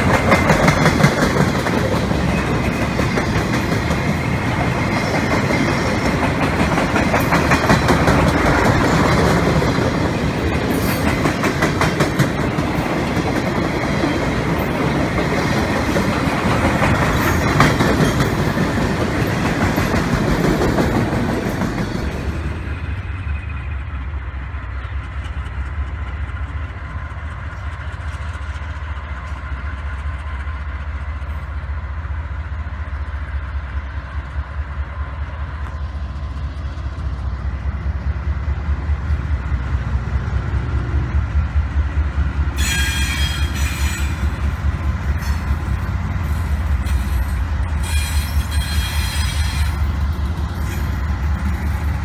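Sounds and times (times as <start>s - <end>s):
diesel locomotives rumbling: 0.0s - 52.0s
high-pitched squealing: 46.9s - 50.0s.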